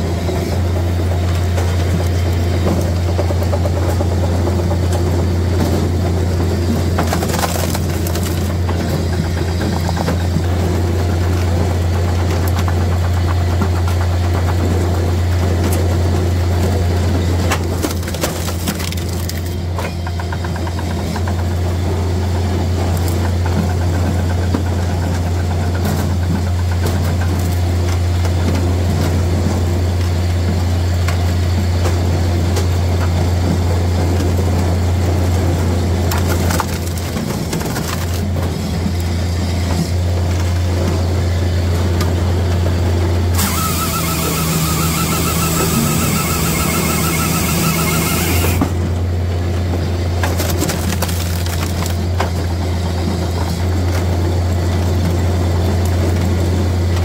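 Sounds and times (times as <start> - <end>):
firewood processor humming: 0.0 - 57.0
wood cracking and splintering: 6.6 - 14.7, 17.4 - 19.8, 26.6 - 28.5, 35.3 - 39.1, 50.0 - 52.6.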